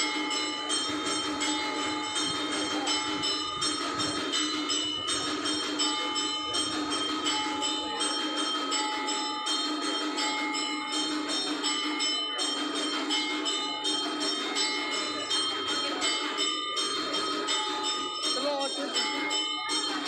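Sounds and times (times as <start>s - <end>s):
brass bells ringing: 0.0s - 20.0s
crowd voices: 0.0s - 20.0s.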